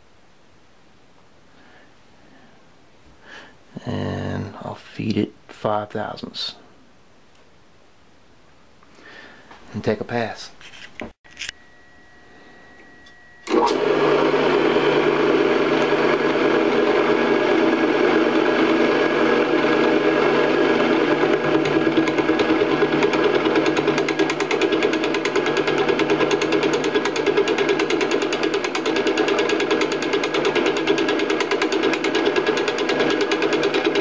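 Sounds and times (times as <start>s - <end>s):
drill press milling: 13.4s - 34.0s
rapid cutter chatter: 21.5s - 34.0s.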